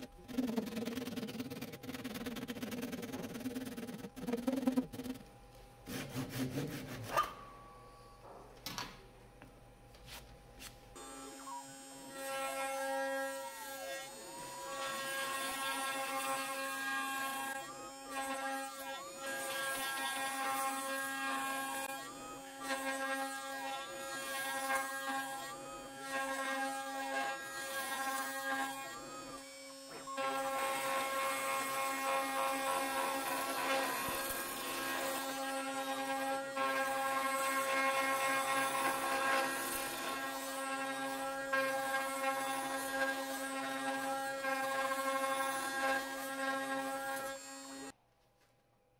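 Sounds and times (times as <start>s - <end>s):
router spindle whining while cutting: 11.0s - 47.9s.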